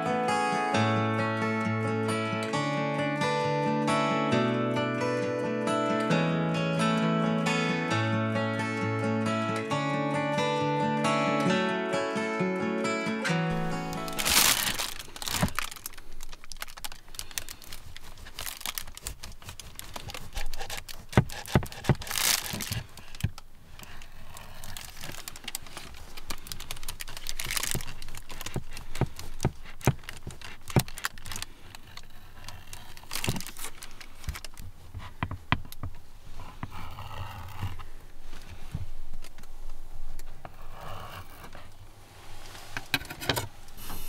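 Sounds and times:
plastic bag crinkling: 13.5s - 35.2s.

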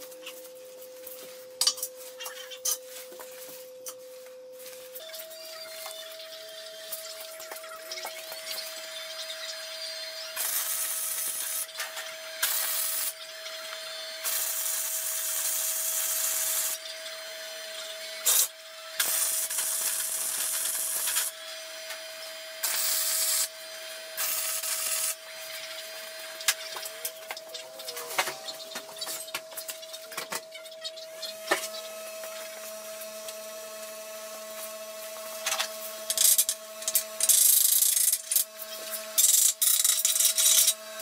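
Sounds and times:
welding arc crackling: 5.4s - 30.4s, 35.4s - 41.0s.

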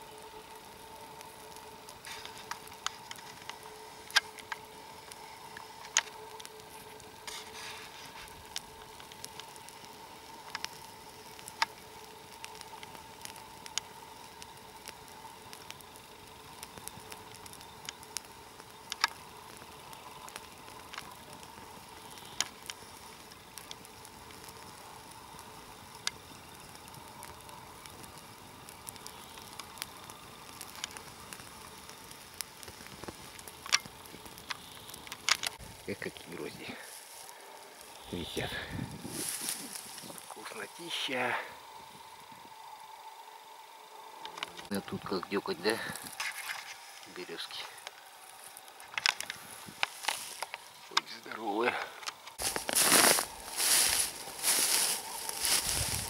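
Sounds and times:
faint hiss: 0.0s - 56.0s
sharp clicks and snaps: 8.2s - 25.2s, 28.7s - 35.6s, 44.2s - 44.8s, 48.8s - 51.1s.

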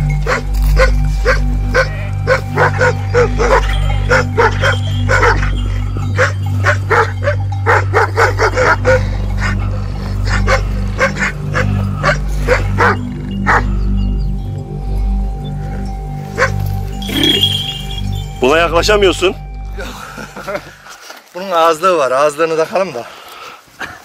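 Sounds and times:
dog barking rapidly: 0.3s - 5.6s, 6.2s - 9.6s, 10.3s - 13.6s.

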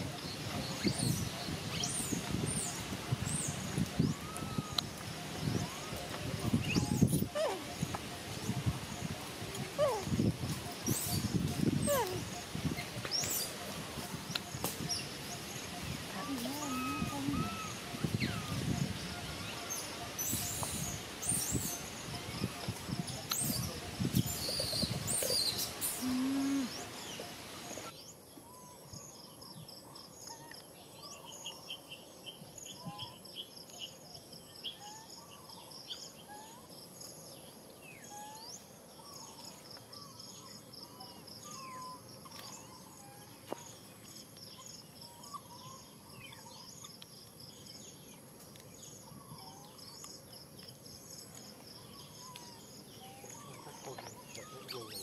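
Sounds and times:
insects trilling: 2.8s - 28.1s.

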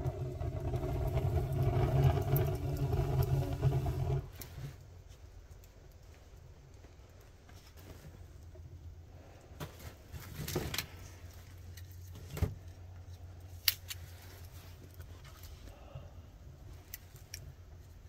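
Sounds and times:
low steady rumble: 0.0s - 7.4s, 8.1s - 18.0s
wood fire crackling: 0.0s - 12.1s.

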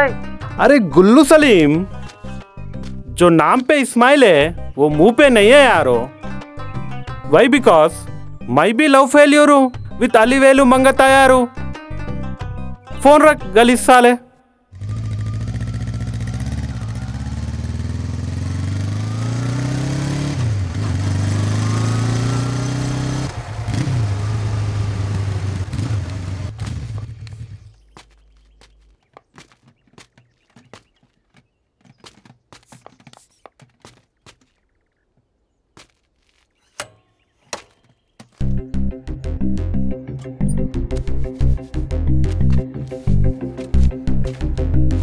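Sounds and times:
motorcycle engine accelerating: 14.7s - 28.6s.

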